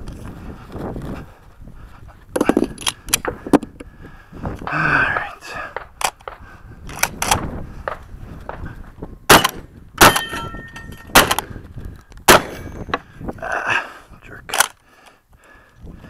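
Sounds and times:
shotgun shots: 9.3 - 11.5, 12.3 - 12.8
steel targets ringing: 10.0 - 11.1.

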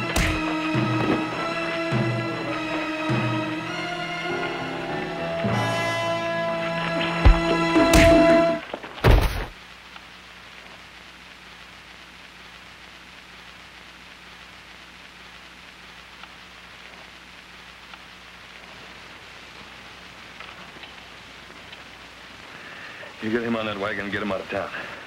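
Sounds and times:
music chord: 0.0 - 8.6
steady hiss: 0.0 - 25.0
loud thump of body hitting ground: 9.0 - 9.6.

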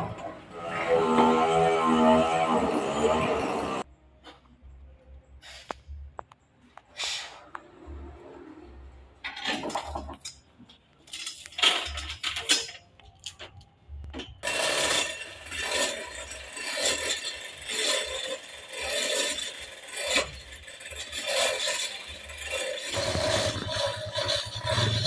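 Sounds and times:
metal chain rattling through hoist: 9.3 - 13.4, 14.4 - 25.0.

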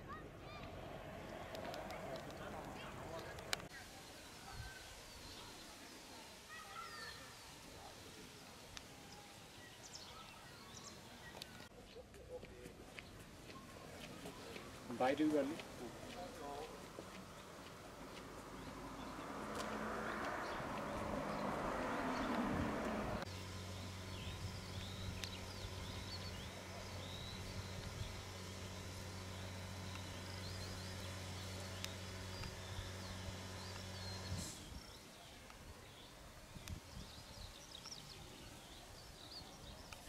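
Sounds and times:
soft steady hiss: 1.3 - 11.7
small birds chirping: 1.4 - 40.0
car driving past on tarmac: 14.3 - 35.1.

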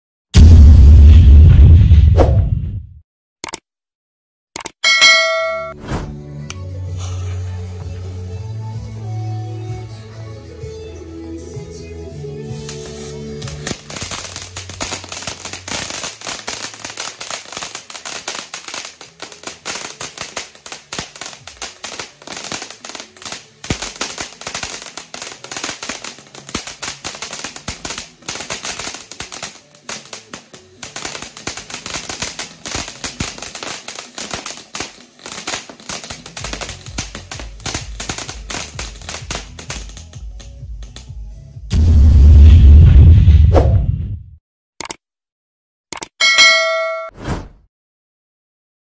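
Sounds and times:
firework fountain crackling: 12.5 - 41.1.

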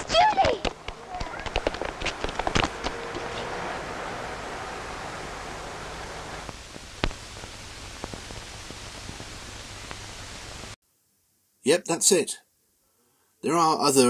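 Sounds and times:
sharp cracks: 0.0 - 3.7, 6.0 - 10.8
film soundtrack hiss: 0.0 - 14.0.

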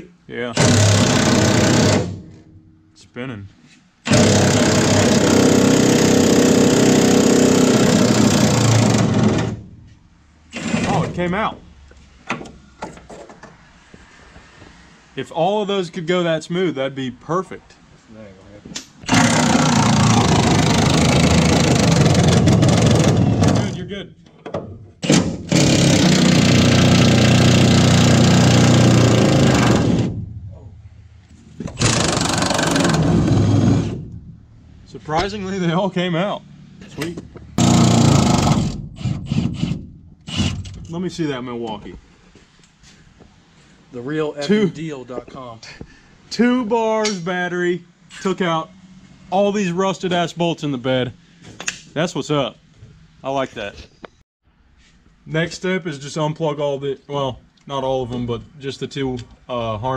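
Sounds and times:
impact wrench hammering: 0.6 - 2.8, 4.1 - 9.8, 19.0 - 23.8, 24.5 - 30.4, 31.6 - 34.2, 37.6 - 40.7.

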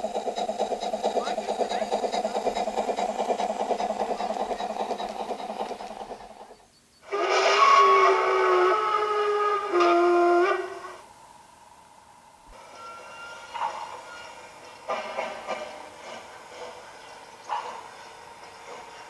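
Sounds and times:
model train running past: 0.0 - 19.0
steam locomotive whistle: 7.0 - 11.2.

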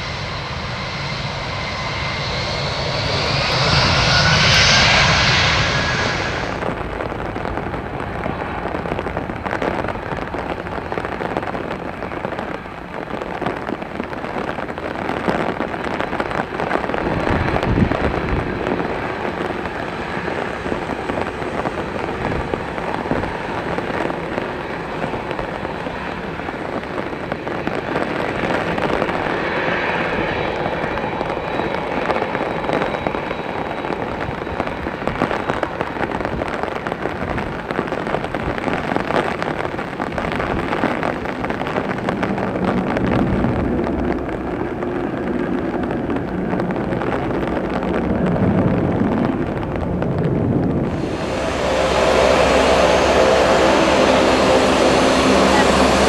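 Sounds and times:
jet engines humming: 0.0 - 9.3, 16.0 - 37.7, 50.7 - 56.0
rain patter: 6.5 - 56.0.

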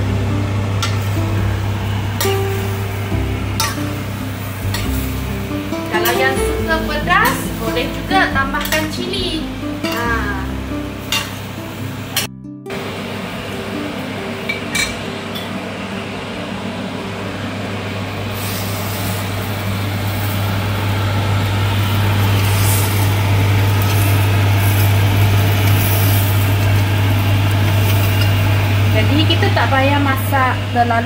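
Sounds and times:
steady low hum: 0.0 - 31.0
fish cooking in a wok: 18.3 - 29.0.

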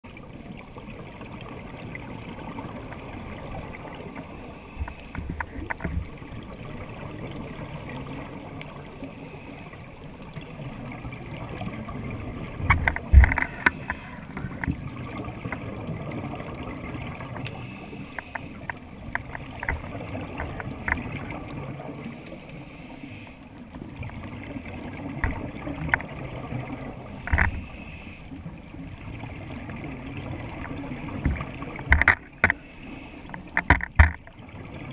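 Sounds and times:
underwater hiss: 3.6 - 5.6, 8.6 - 10.2, 13.0 - 14.4, 17.2 - 18.8, 21.8 - 23.7, 26.8 - 29.2, 32.3 - 33.6
scuba regulator breathing: 4.0 - 5.6, 8.8 - 10.1, 12.9 - 14.6, 17.5 - 18.7, 22.0 - 23.6, 27.0 - 28.6, 32.3 - 33.6
sharp clicks and knocks: 12.6 - 14.8, 27.2 - 27.6, 31.2 - 32.6, 33.3 - 34.3.

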